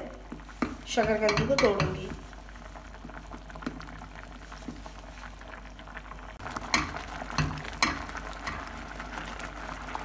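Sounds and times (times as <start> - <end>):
milk bubbling: 0.0 - 10.0
spoon stirring and mashing: 0.3 - 2.3, 6.6 - 8.8
spoon knocking against pan: 0.6 - 2.1, 6.6 - 8.7.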